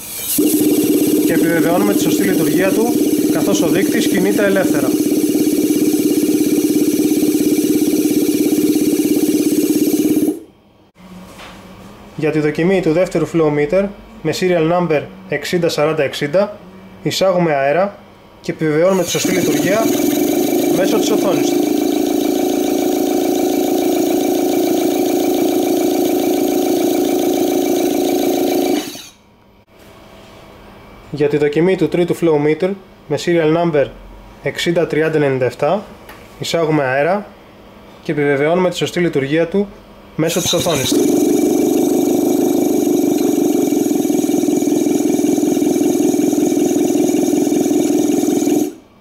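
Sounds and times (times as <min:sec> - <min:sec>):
compressed air hissing: 0:00.0 - 0:01.2
flowmeter whirring hum: 0:00.0 - 0:49.0
fine rapid ticking: 0:00.4 - 0:10.4, 0:19.0 - 0:29.0, 0:40.3 - 0:48.8.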